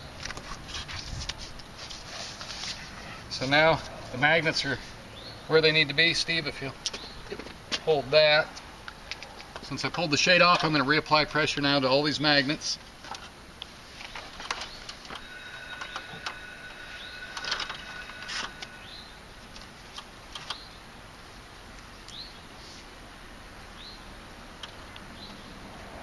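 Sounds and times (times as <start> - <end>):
birds chirping: 3.2 - 9.9, 13.9 - 20.9, 24.7 - 25.7.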